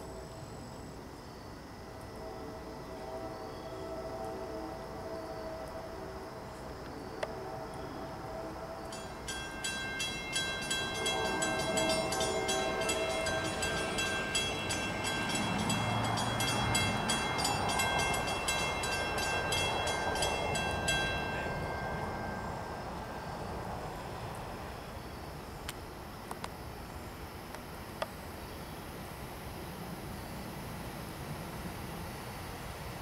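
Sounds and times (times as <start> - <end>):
train horn blast: 2.0 - 24.7
crossing warning bell ringing: 8.9 - 24.9.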